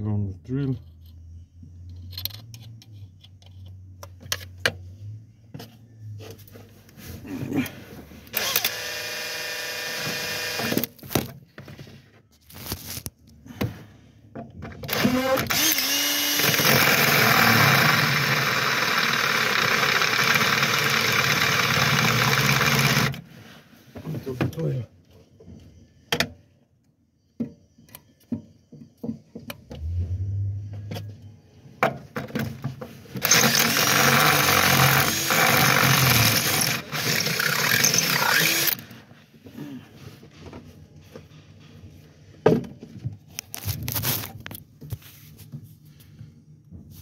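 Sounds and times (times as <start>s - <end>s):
electric drill boring into metal: 8.3s - 10.9s, 14.9s - 23.2s, 33.2s - 38.9s.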